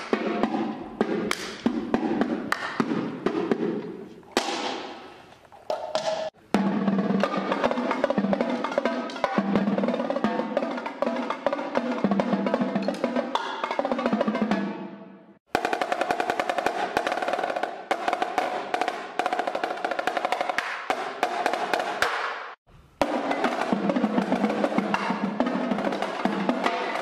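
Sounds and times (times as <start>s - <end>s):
tenor drums playing: 0.0s - 5.2s, 6.0s - 14.8s, 23.0s - 27.0s.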